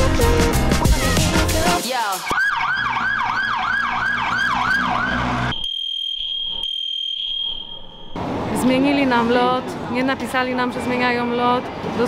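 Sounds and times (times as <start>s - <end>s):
emergency siren yelping: 2.2s - 8.2s
high-pitched electronic tone: 4.4s - 8.2s.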